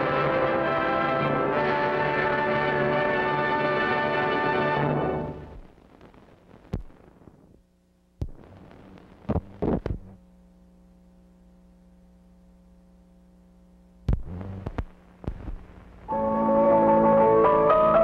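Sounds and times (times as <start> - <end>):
orchestral film score: 0.0 - 5.4, 16.1 - 18.0
faint low hum: 0.0 - 16.2
soundtrack clicks and pops: 6.7 - 7.0, 14.1 - 15.7.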